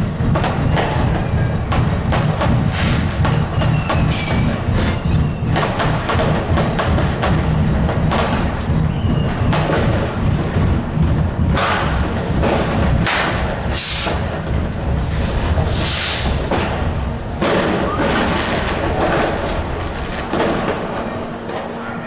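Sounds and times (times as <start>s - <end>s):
fireworks and firecrackers banging: 0.0s - 22.0s
tram running rumble: 0.0s - 22.0s
firework hissing bursts: 15.2s - 16.4s.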